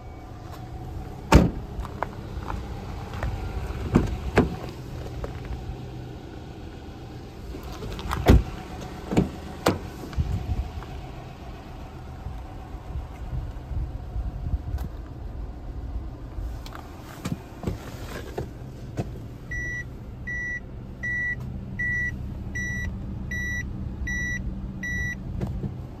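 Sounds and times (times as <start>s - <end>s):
car engine idling: 0.0s - 26.0s
reverse warning buzzer beeps: 19.5s - 25.2s.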